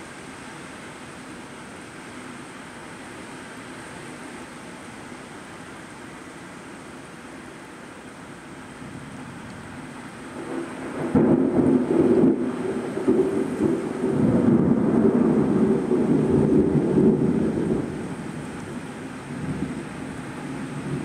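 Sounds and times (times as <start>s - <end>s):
steady rain: 0.0s - 21.0s
thunder crack and rumble: 10.4s - 19.9s.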